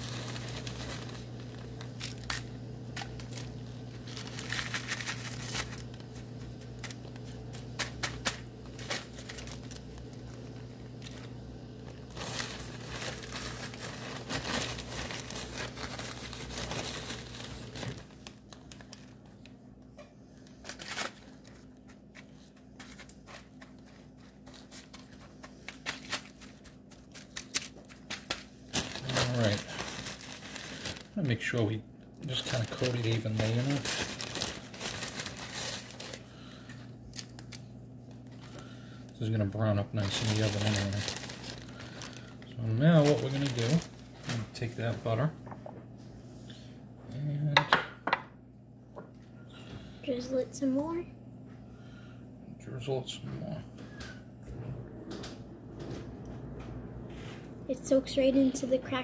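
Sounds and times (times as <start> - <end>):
crumbs rustling: 0.0 - 19.4, 20.4 - 45.2
aluminium foil crinkling: 0.0 - 19.6, 20.3 - 45.3
low steady hum: 0.0 - 59.0.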